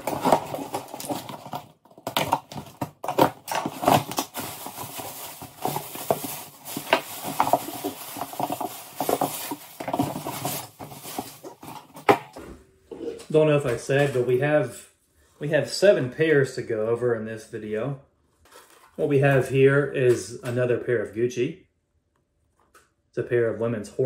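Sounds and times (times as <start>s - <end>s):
cardboard box being opened: 0.0s - 12.0s
packing material rustling: 0.0s - 12.2s.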